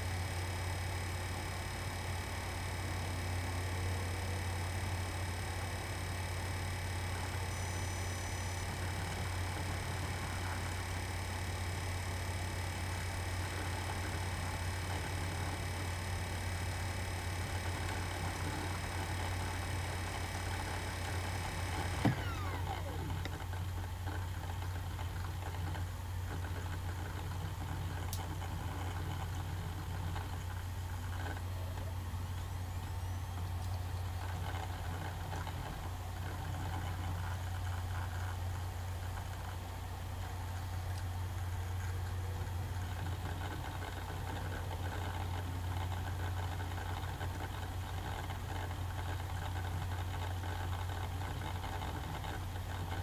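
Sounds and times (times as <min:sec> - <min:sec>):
laptop humming: 0:00.0 - 0:53.0
high whining tones: 0:15.6 - 0:23.2.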